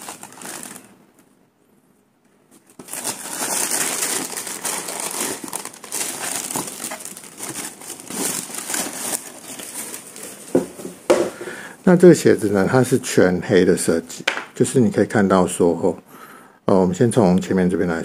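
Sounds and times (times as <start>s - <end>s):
tissue paper crinkling and rustling: 0.0s - 0.9s, 2.6s - 10.7s.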